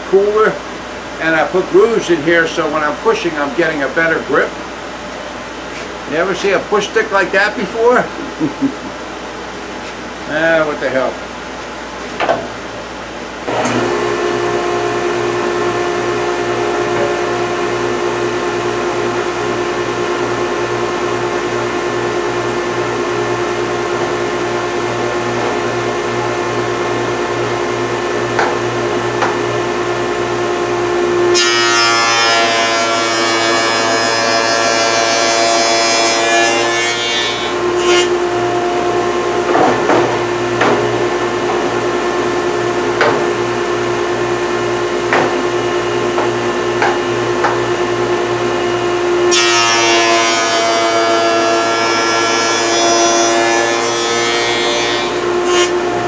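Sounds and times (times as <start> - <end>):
cutter cutting wood: 13.5 - 14.4
woodworking machine humming: 13.5 - 56.0.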